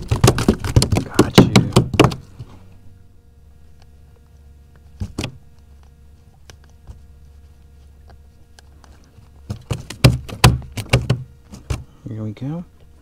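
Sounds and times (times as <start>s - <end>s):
sharp knocks: 0.0s - 2.2s, 9.5s - 11.8s
steady low hum: 0.0s - 13.0s.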